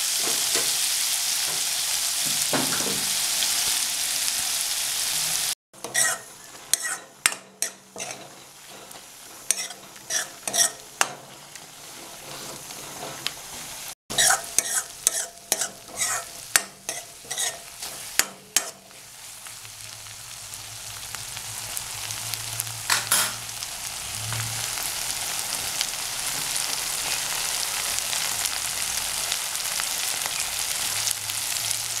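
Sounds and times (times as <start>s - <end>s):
oil sizzling: 0.0s - 32.0s
spatula scraping a metal pan: 5.8s - 19.0s.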